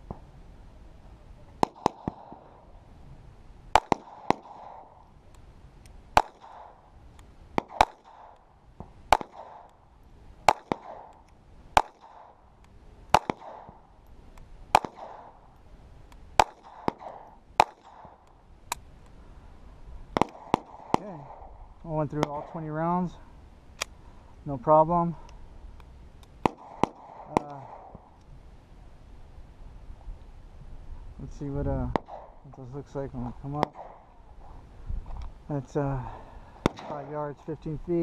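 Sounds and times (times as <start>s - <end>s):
pistol shots with echo: 1.6s - 2.5s, 3.7s - 5.0s, 6.2s - 6.8s, 7.6s - 8.4s, 9.1s - 9.8s, 10.4s - 11.2s, 11.8s - 12.4s, 13.1s - 13.9s, 14.7s - 15.4s, 16.4s - 18.2s, 20.2s - 21.5s, 26.4s - 28.0s, 31.9s - 32.4s, 33.5s - 34.0s, 36.6s - 37.1s.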